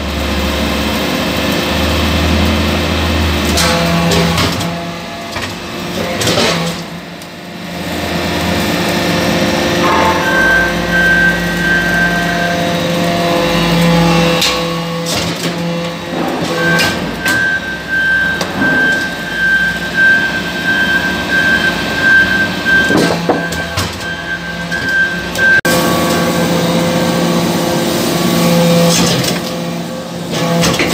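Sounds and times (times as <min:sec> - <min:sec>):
high whine: 0:09.5 - 0:13.3.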